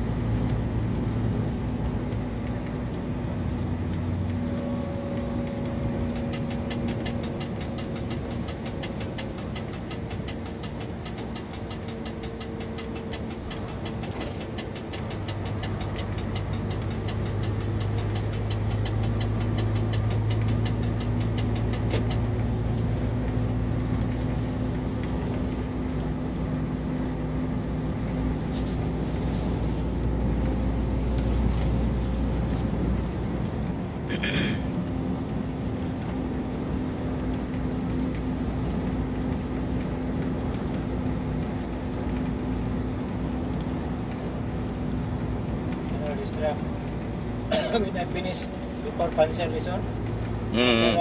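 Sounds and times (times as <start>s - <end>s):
road noise: 0.0s - 51.0s
vehicle engine drone: 0.0s - 51.0s
fast even ticking: 5.7s - 24.2s.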